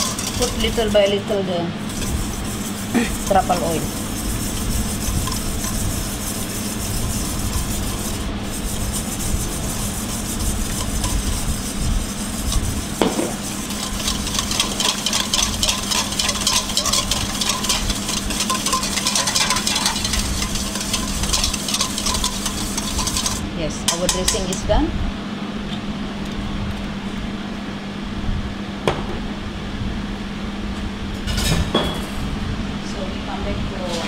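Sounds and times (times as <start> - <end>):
whisk scraping metal bowl: 0.0 - 24.6
steady low hum: 0.0 - 34.0.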